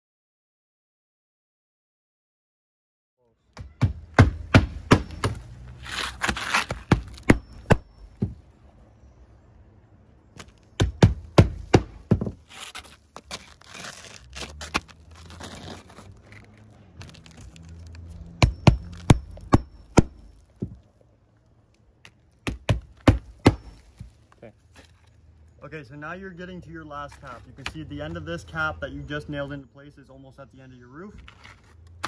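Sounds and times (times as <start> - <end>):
shingles rustling and scraping: 4.9 - 8.5, 11.4 - 25.3, 27.0 - 28.1, 31.1 - 32.0.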